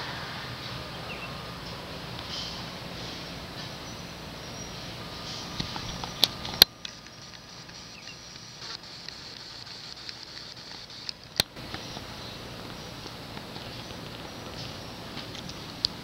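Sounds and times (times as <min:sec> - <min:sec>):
outdoor background noise: 0:00.0 - 0:16.0
sharp clicks: 0:05.6 - 0:12.1.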